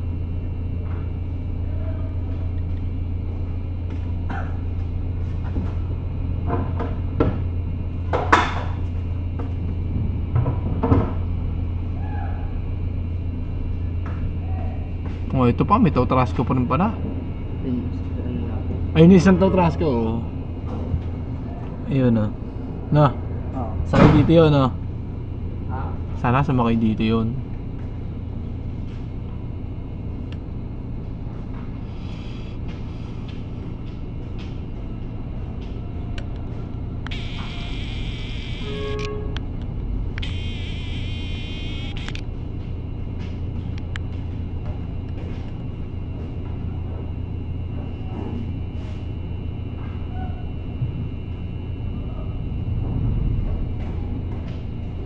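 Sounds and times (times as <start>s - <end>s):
ferry machinery drone: 0.0s - 55.0s
low engine rumble: 12.6s - 55.0s.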